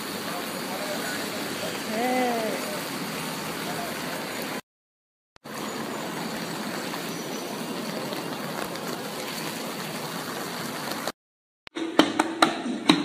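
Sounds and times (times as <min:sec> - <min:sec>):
heavy rain on wet pavement: 0:00.0 - 0:04.6, 0:05.4 - 0:11.2.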